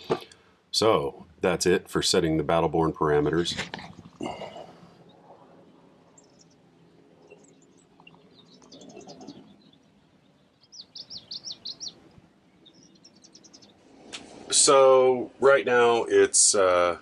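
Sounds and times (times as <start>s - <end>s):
small bird chirping: 6.1s - 13.8s.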